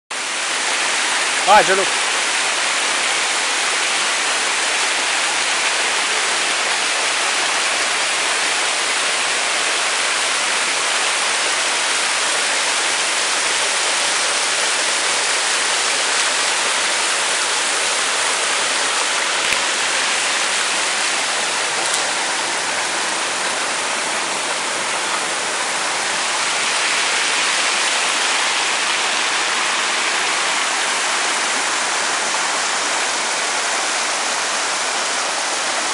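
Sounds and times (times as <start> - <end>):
stream running over rocks: 0.1 - 35.9.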